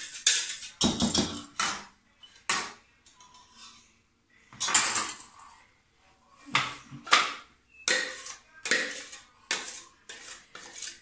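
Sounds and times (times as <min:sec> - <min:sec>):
utensil scraping plastic beaker: 0:07.9 - 0:11.0.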